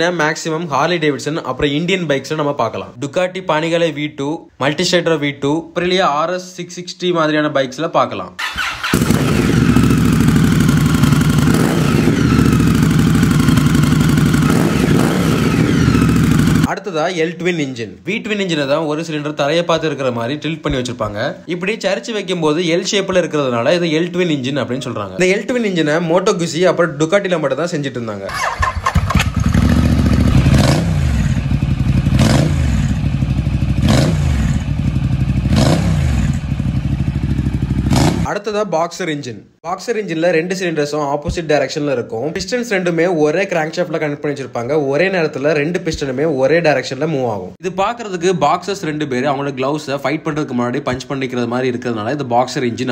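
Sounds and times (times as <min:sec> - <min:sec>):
motorcycle engine idling: 0:08.6 - 0:16.7, 0:28.4 - 0:38.2.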